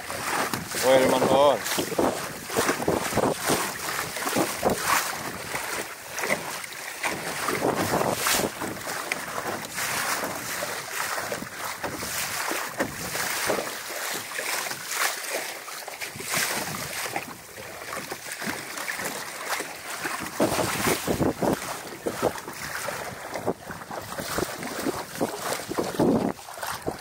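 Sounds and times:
wind buffeting microphone: 0.0s - 5.8s, 7.1s - 10.6s, 20.1s - 27.0s
water splashing against hull: 0.0s - 27.0s.

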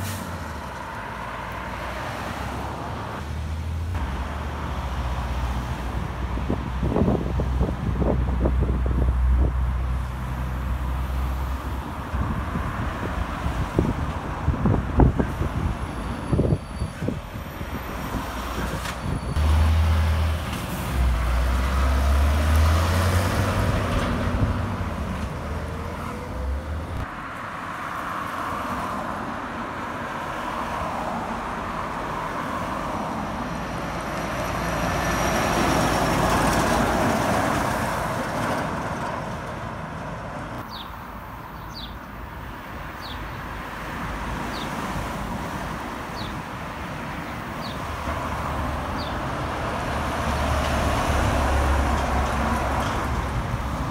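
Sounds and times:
truck diesel engine: 0.0s - 12.8s, 14.4s - 27.0s
truck tyre and road noise: 0.0s - 53.9s.

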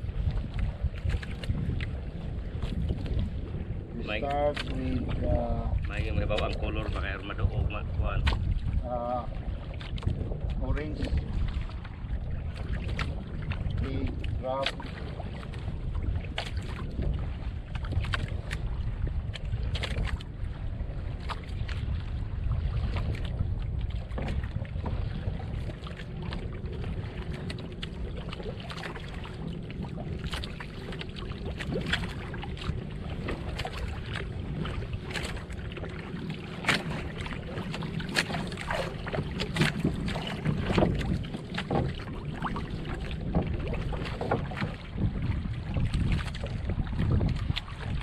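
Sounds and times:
water splashing against boat hull: 0.0s - 48.0s
wind buffeting microphone: 0.0s - 48.0s.

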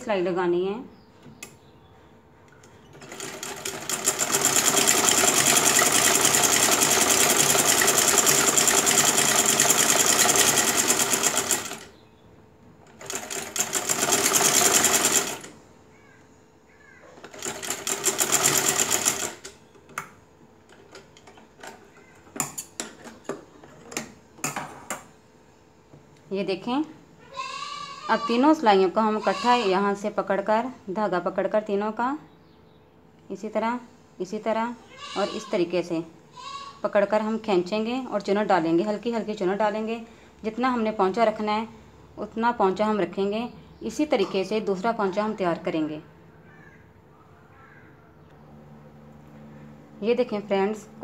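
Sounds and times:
sewing machine stitching: 2.9s - 11.9s, 12.9s - 15.5s, 17.2s - 19.5s.

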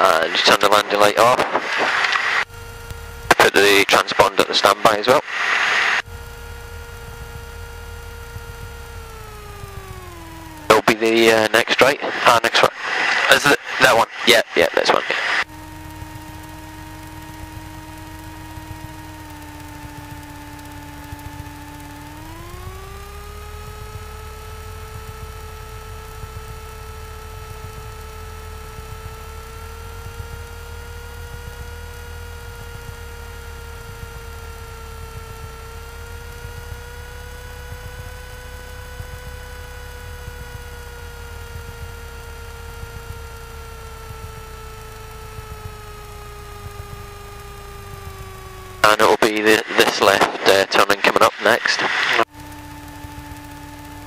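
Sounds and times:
aircraft engine over intercom: 0.0s - 54.0s.

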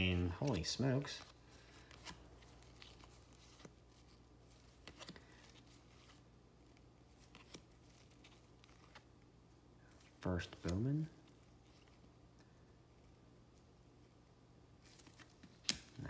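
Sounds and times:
low electrical hum: 0.0s - 16.0s
cards flipping ticks: 15.0s - 16.0s.

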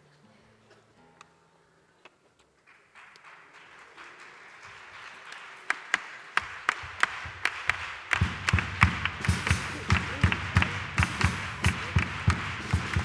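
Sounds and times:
audience applause: 2.6s - 13.0s
sharp claps and thuds: 2.6s - 13.0s.

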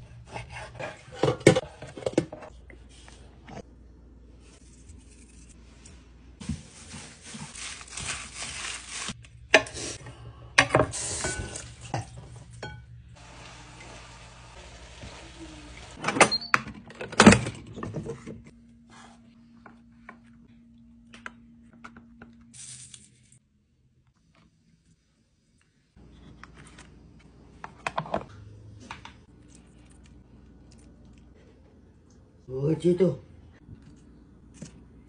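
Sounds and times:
frying pan sizzling: 13.2s - 16.0s.

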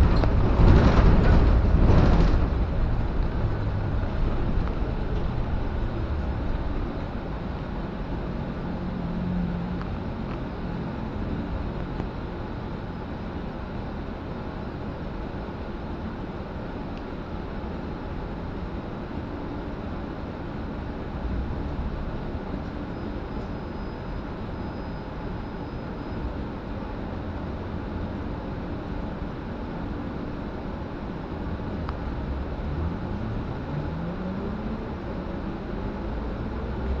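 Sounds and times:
bus engine and cabin rumble: 0.0s - 37.0s.

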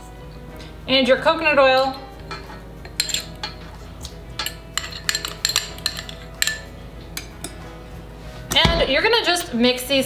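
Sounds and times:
spoon clinking on glass bowl: 1.8s - 7.6s.

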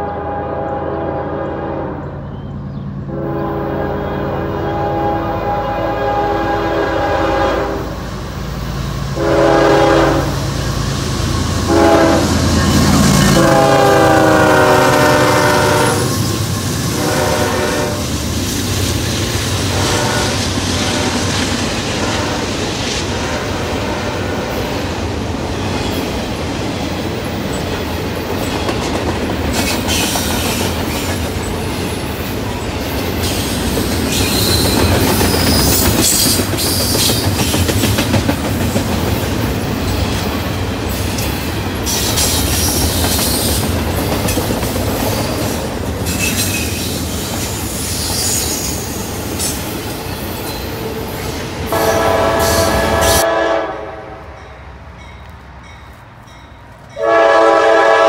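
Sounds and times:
locomotive air horn blasts: 0.0s - 2.2s, 3.1s - 8.0s, 9.2s - 10.5s, 11.6s - 16.3s, 16.9s - 18.2s, 19.7s - 21.2s, 22.0s - 22.5s, 23.1s - 24.6s, 51.7s - 54.4s, 56.9s - 58.0s
train wheels clacking over rail joints: 26.7s - 50.6s.

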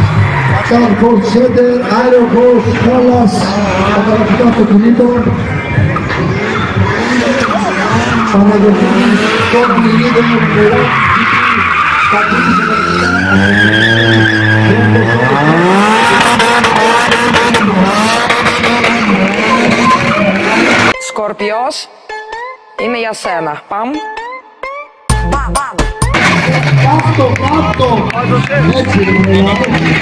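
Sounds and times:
car engine revving hard: 0.0s - 21.0s, 26.1s - 30.0s
tyres squealing: 6.0s - 17.0s.

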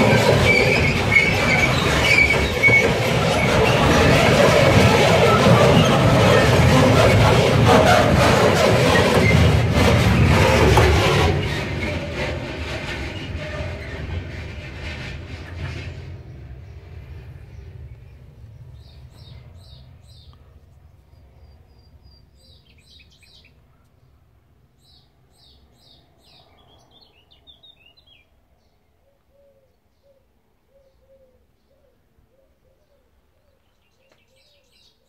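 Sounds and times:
diesel freight train rumble: 0.0s - 23.6s.

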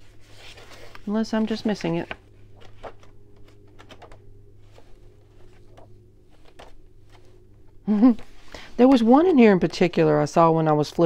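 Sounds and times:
book pages rustling: 0.0s - 9.3s
low hum: 0.0s - 10.8s
page turning ticks: 0.9s - 7.3s.

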